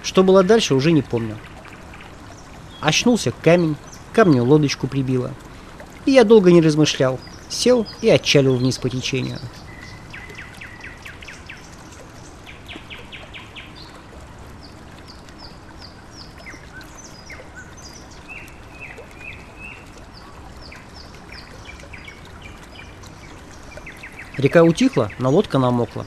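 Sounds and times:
river water flowing: 0:00.0 - 0:26.0
songbirds chirping: 0:00.0 - 0:26.0.

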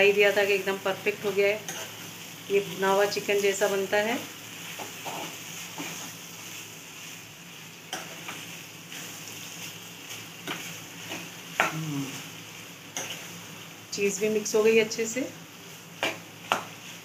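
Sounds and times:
pan sizzling: 0:00.0 - 0:17.0
spatula scraping a pan: 0:01.6 - 0:02.4, 0:04.5 - 0:11.7.

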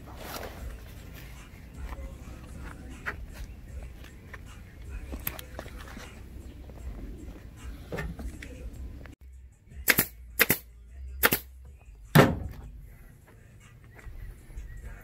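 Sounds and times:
pneumatic staple gun firing: 0:09.9 - 0:10.6.

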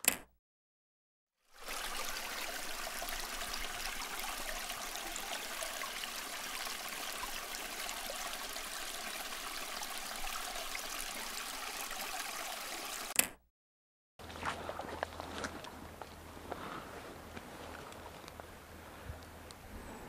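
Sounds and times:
stream babbling over stones: 0:01.5 - 0:13.2.

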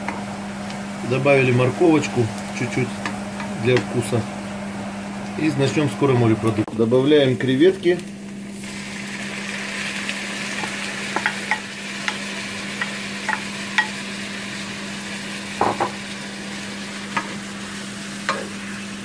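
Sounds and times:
steady low hum: 0:00.0 - 0:09.5
shrimp sizzling in a frying pan: 0:08.4 - 0:19.0.

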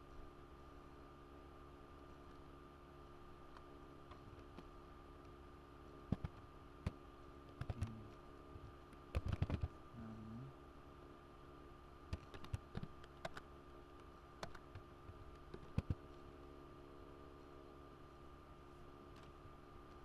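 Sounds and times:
keyboard typing clicks: 0:12.1 - 0:13.4, 0:14.4 - 0:14.8, 0:15.5 - 0:16.0.

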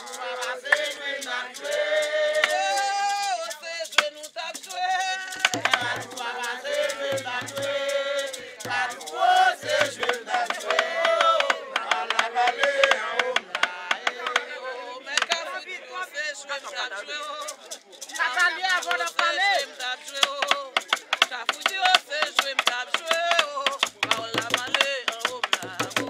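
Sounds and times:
sharp percussive clicks: 0:00.0 - 0:15.5, 0:17.3 - 0:26.0
group singing: 0:00.0 - 0:26.0.

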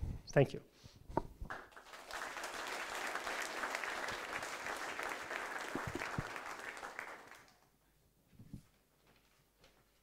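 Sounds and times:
audience applauding: 0:01.5 - 0:07.7.

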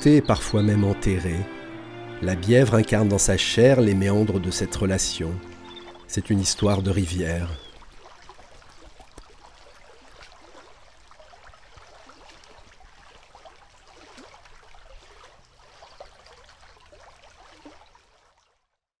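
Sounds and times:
shallow river water flowing: 0:00.0 - 0:18.9
water trickling and gurgling: 0:02.9 - 0:18.9.

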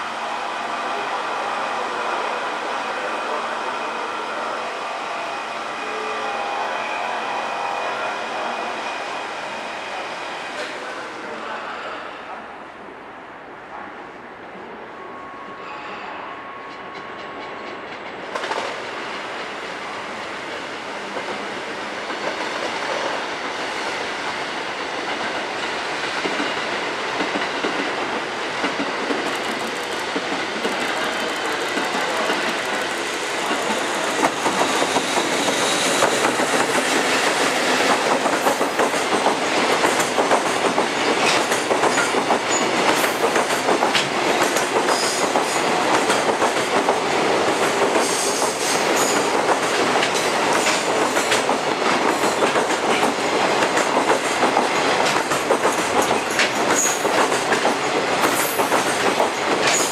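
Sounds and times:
electric locomotive approaching: 0:00.0 - 0:59.9
train wheels clickety-clack: 0:16.7 - 0:19.6, 0:21.1 - 0:23.7, 0:24.3 - 0:59.9.

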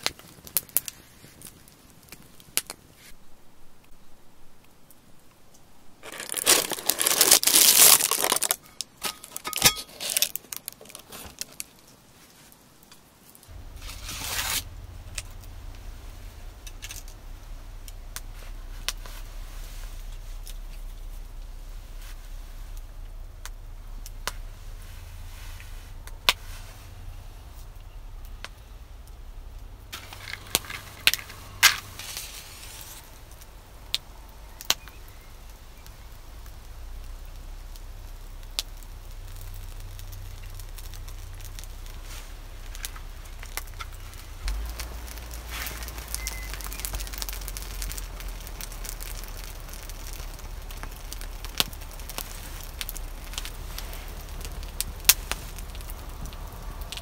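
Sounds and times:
low steady rumble: 0:13.5 - 0:57.0.

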